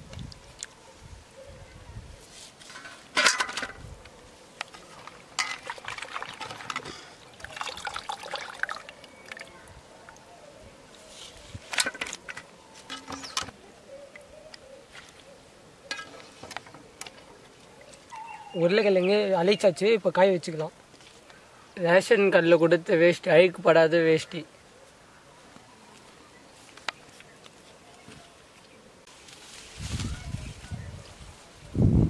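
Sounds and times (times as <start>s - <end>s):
water splashing and dripping: 5.0s - 10.2s.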